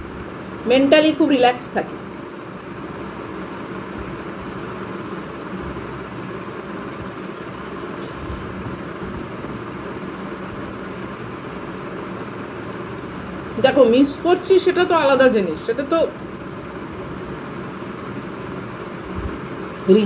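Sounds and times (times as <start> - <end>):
background hum and hiss: 0.0 - 20.0.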